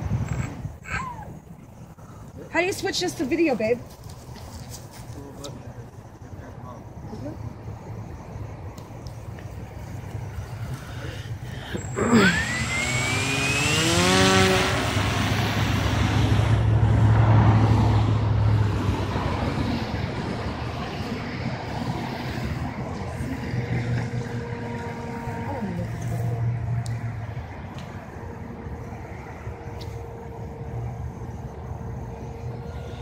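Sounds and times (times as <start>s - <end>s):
propeller whirring: 5.4s - 33.0s
electric motor whine rising: 11.0s - 17.8s.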